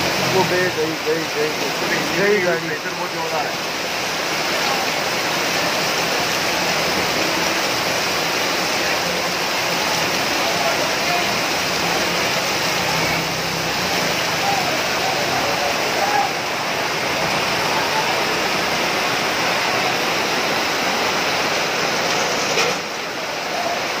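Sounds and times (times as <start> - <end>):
floodwater rushing: 0.0 - 24.0
heavy rain pouring: 0.0 - 24.0
faint voices: 5.7 - 20.4.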